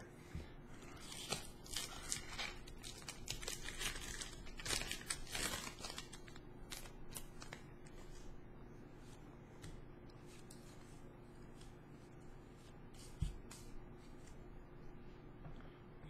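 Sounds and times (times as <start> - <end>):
foil wrapper crinkling and tearing: 1.0 - 7.7.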